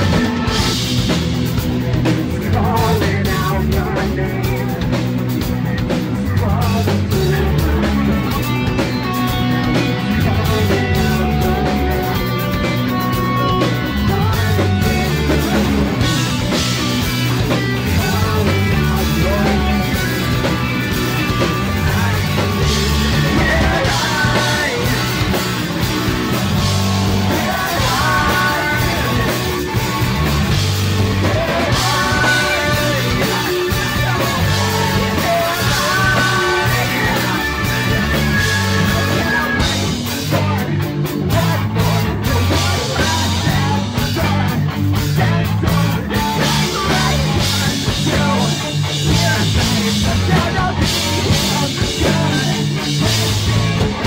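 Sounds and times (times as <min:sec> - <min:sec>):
live rock band playing: 0:00.0 - 0:54.0
person shouting and singing: 0:17.2 - 0:54.0.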